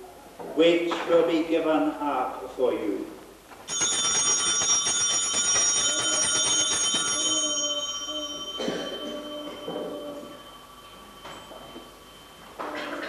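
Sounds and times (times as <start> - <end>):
altar bells ringing rapidly: 3.7 - 13.0.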